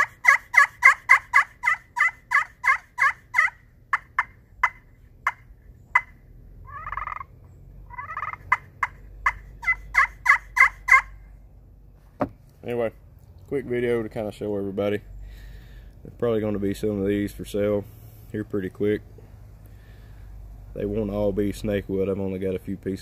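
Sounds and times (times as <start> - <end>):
turkey call clucks: 0.0 - 7.3, 7.9 - 11.2
turkey call yelps: 0.0 - 7.3, 7.9 - 11.2
turkey call rattling purrs: 0.0 - 11.2.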